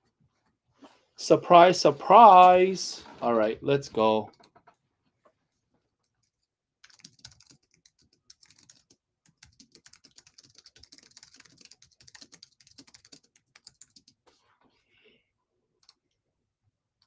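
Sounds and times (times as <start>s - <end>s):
typing on computer keyboard: 6.1s - 14.2s, 15.8s - 16.1s.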